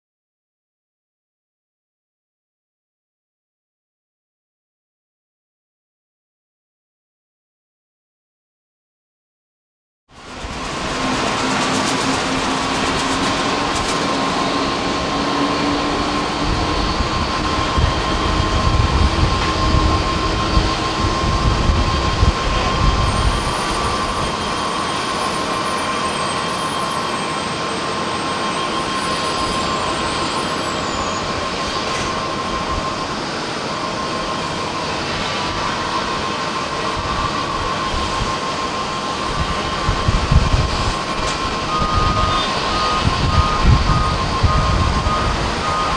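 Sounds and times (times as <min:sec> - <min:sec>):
jet engines whining: 0:10.1 - 0:45.9
wind rumbling on microphone: 0:10.2 - 0:24.6, 0:35.0 - 0:45.9.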